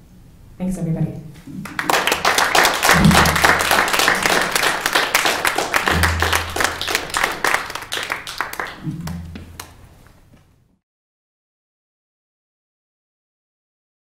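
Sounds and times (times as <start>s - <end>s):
audience applauding: 1.6s - 9.8s
low thuds: 2.9s - 7.8s.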